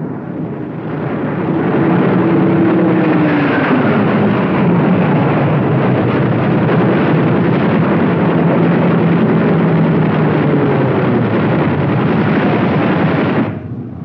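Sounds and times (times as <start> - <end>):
propeller aircraft engines droning: 0.0 - 14.0.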